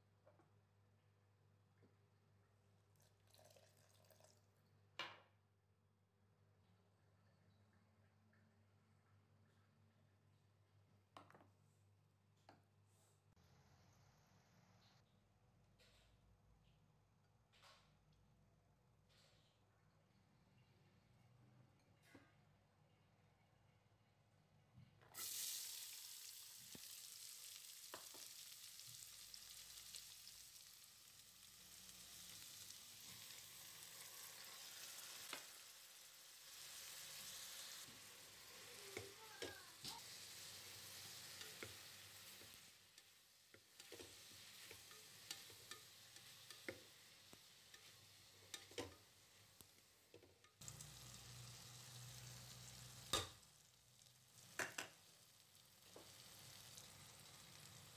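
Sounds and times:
onions sizzling in oil: 25.2s - 57.9s
steel spoon scraping a pot: 47.7s - 49.1s.

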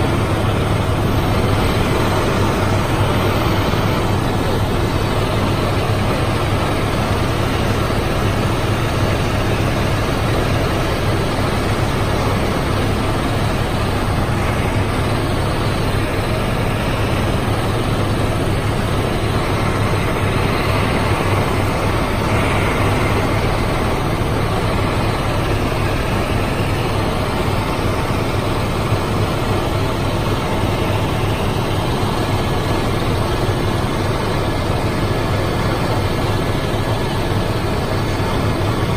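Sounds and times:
helicopter engine and rotor noise: 0.0s - 38.9s.

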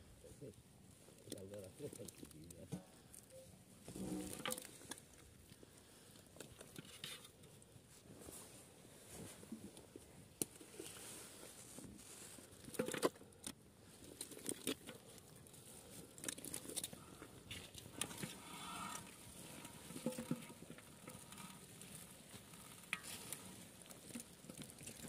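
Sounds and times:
fish slapping wetly in a pot: 19.0s - 21.2s.

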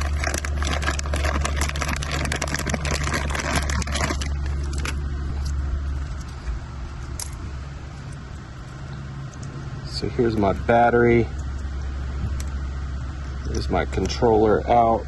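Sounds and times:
plastic bag crinkling: 0.0s - 5.6s
low rumble: 0.0s - 14.0s.

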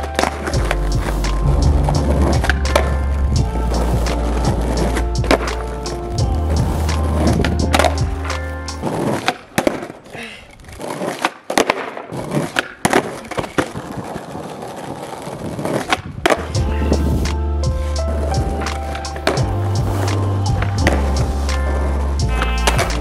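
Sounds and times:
music with heavy bass beat: 0.0s - 8.8s, 16.4s - 23.0s
skateboard clacks: 0.0s - 23.0s
skateboard wheels rolling on asphalt: 0.0s - 23.0s.

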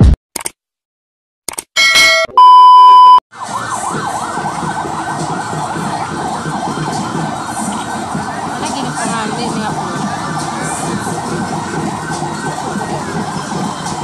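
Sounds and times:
loud steady beep: 1.8s - 3.2s
police siren wailing: 3.3s - 14.0s.

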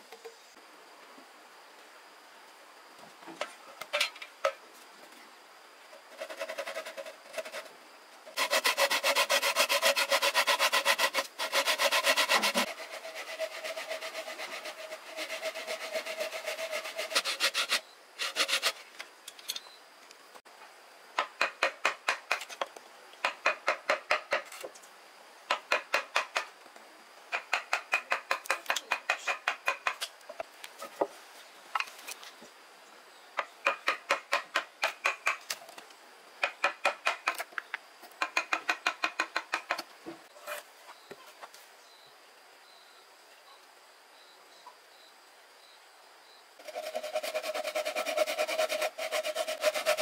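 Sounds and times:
rubbing or scraping strokes: 6.0s - 7.7s, 8.3s - 18.9s, 46.6s - 50.0s.

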